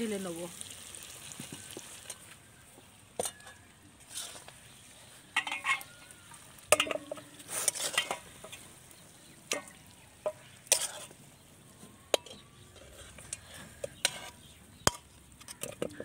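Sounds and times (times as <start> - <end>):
metal spatula scraping a pan: 3.2 - 11.2, 12.1 - 16.0.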